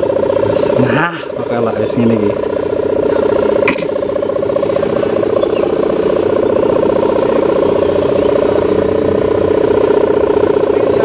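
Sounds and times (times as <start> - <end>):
kite hummer buzzing in wind: 0.0 - 11.0.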